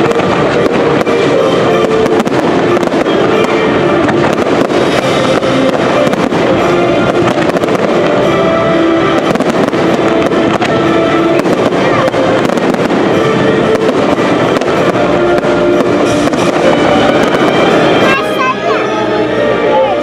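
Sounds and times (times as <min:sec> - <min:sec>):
fireworks bursting and crackling: 0:00.0 - 0:19.6
loud show music: 0:00.0 - 0:20.0.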